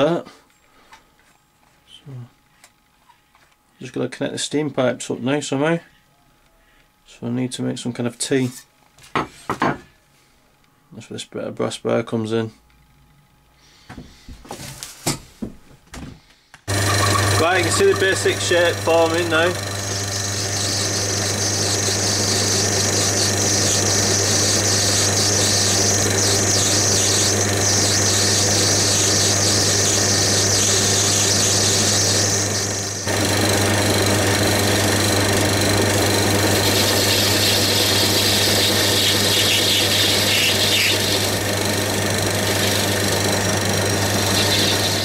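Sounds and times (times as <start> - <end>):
metal lathe motor hum: 16.7 - 45.0
tool cutting brass hiss: 16.8 - 45.0.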